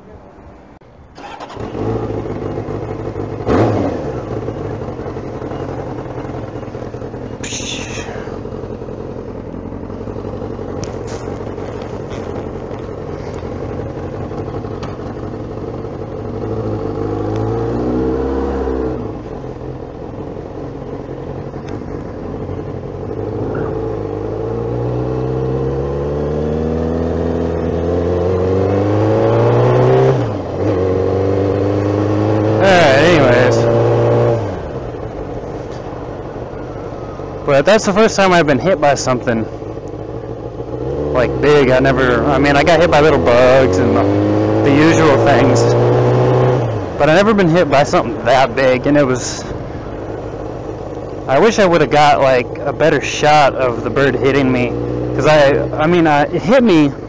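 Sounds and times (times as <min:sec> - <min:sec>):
motorcycle engine revving: 0:01.1 - 0:57.0.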